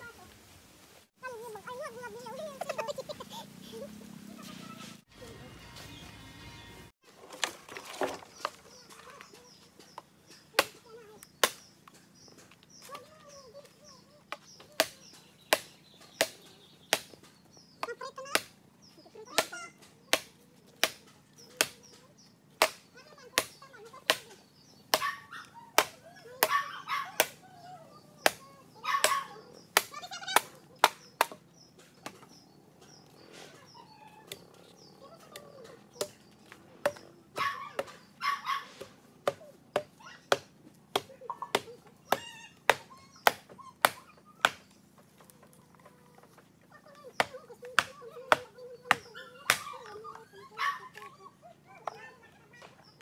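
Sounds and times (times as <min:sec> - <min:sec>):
machete chopping bamboo: 0:09.8 - 0:12.1, 0:14.3 - 0:18.6, 0:19.3 - 0:22.0, 0:22.6 - 0:25.1, 0:25.8 - 0:27.4, 0:28.2 - 0:28.4, 0:29.0 - 0:32.2, 0:35.9 - 0:38.0, 0:38.7 - 0:44.8, 0:47.2 - 0:49.8.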